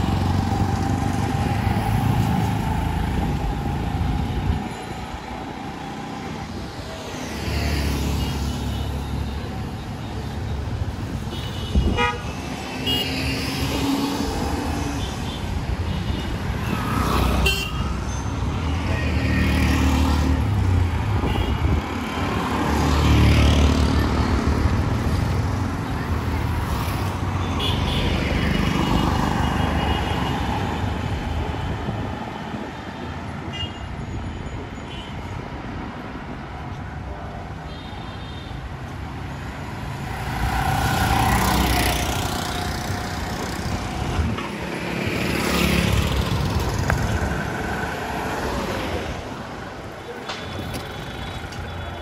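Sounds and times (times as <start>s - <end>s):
motor vehicles passing: 0.0s - 8.2s, 39.6s - 50.2s.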